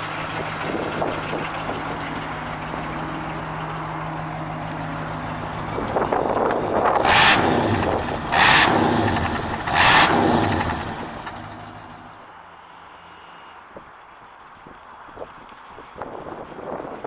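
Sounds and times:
car engine revving: 0:04.7 - 0:12.2.

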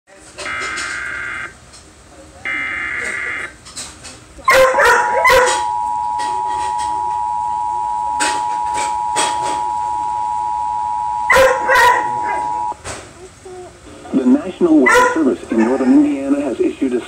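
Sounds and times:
dog barking: 0:04.5 - 0:05.7, 0:11.3 - 0:12.5, 0:14.8 - 0:16.0
two-tone alert beep: 0:05.3 - 0:12.8.

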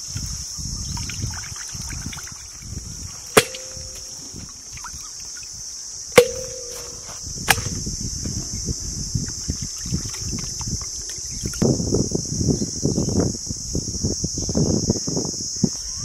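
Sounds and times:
metal bowl knocked and ringing: 0:03.4 - 0:04.4, 0:06.2 - 0:07.7.

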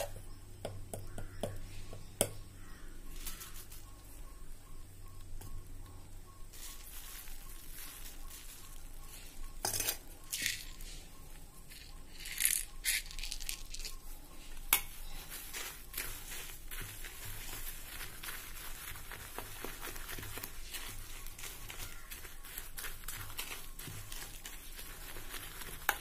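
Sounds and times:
leaves rustling: 0:02.6 - 0:04.2, 0:06.4 - 0:09.5, 0:11.7 - 0:26.0
spoon clinking against metal pot: 0:09.6 - 0:10.6.

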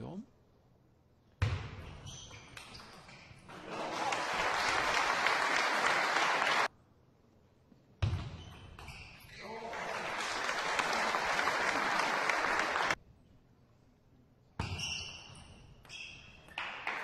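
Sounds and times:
spectators applauding: 0:03.5 - 0:06.7, 0:09.4 - 0:13.0, 0:16.6 - 0:17.0.

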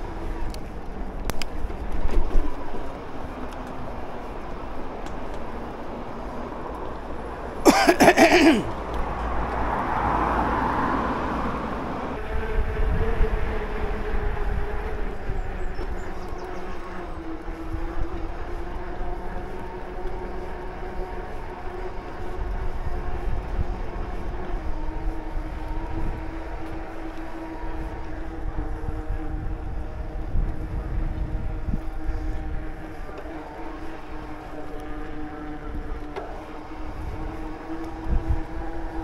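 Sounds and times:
rumble of wind and tyres: 0:00.0 - 0:39.0
electric bike motor whining: 0:12.1 - 0:39.0.

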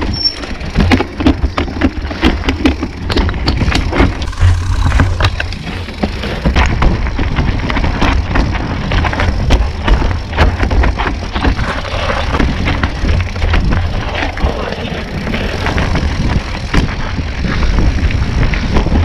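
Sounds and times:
bike rattling over stones: 0:00.0 - 0:19.0
wind rumble on microphone: 0:00.0 - 0:19.0.

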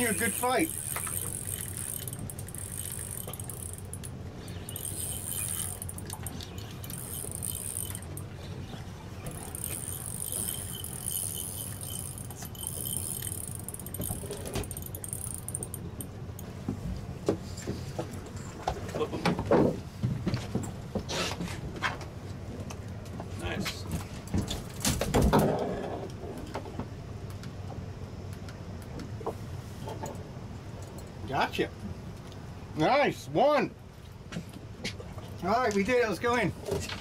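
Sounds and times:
high whirring hiss: 0:00.0 - 0:03.5
light metallic rattling: 0:00.0 - 0:08.5, 0:09.2 - 0:16.5
boat engines idling: 0:00.0 - 0:19.2.

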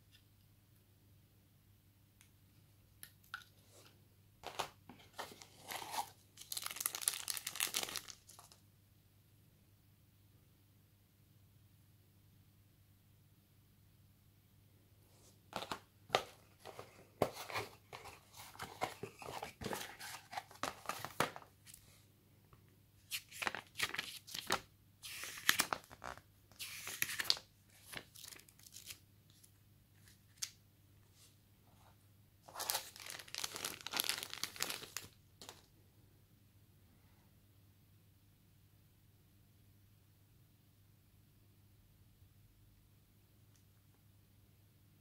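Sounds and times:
cardboard and paper rustling: 0:04.4 - 0:08.5, 0:15.6 - 0:21.5
pages flipping: 0:04.4 - 0:08.6, 0:15.6 - 0:21.8, 0:23.1 - 0:29.4, 0:32.5 - 0:35.7.

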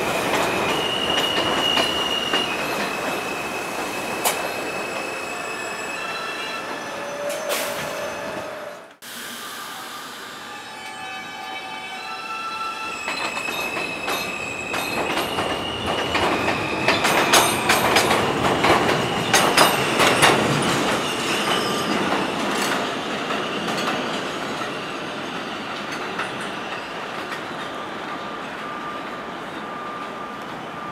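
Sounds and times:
train wheels clattering: 0:13.1 - 0:27.8.

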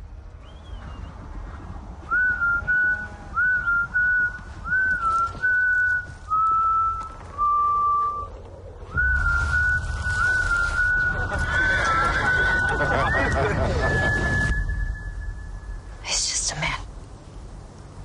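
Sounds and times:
steady low rumble: 0:00.0 - 0:18.0
person whistling a slow tune: 0:02.1 - 0:08.3, 0:08.9 - 0:11.2, 0:11.8 - 0:15.8.

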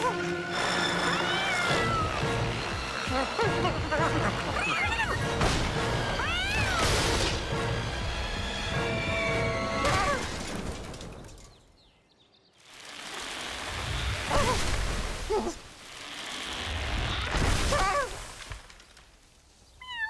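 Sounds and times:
cartoon music: 0:00.0 - 0:05.4.

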